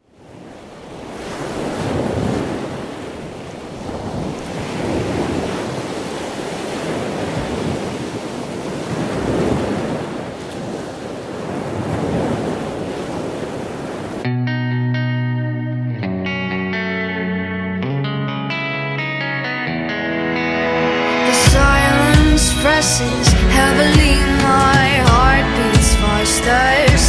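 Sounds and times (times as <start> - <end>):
ocean waves breaking: 0.0 - 14.3, 20.0 - 27.0.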